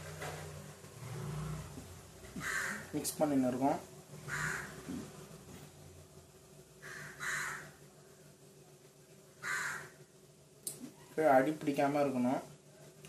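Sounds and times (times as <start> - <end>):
crow cawing: 2.4 - 3.0, 4.3 - 4.9, 6.8 - 7.8, 9.4 - 10.0.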